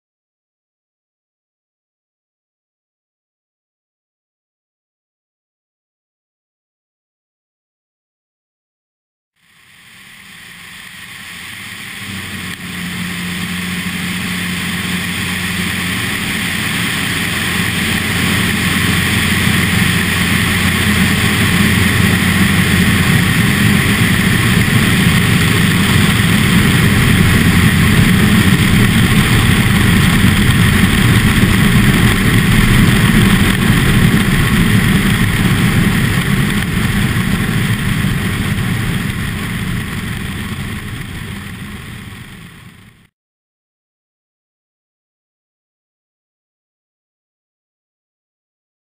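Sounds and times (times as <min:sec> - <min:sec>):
airplane engine and propeller drone: 0:09.4 - 0:43.1
wind rushing over camera: 0:09.6 - 0:43.1.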